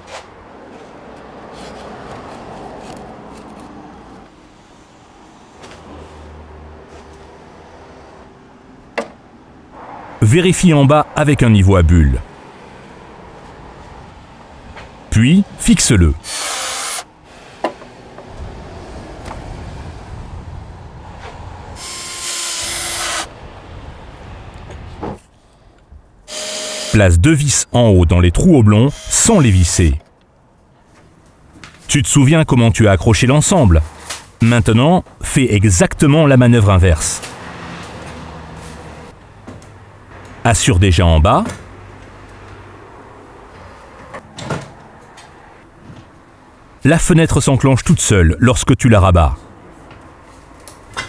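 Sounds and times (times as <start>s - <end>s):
cordless drill whining: 16.2s - 17.1s, 21.8s - 23.3s, 26.3s - 27.0s, 28.9s - 29.3s.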